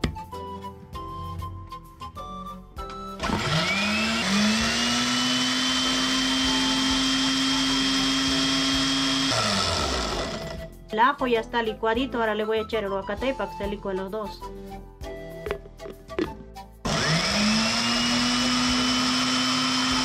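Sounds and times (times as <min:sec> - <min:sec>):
blender motor whine: 0:03.2 - 0:10.7, 0:16.9 - 0:20.0.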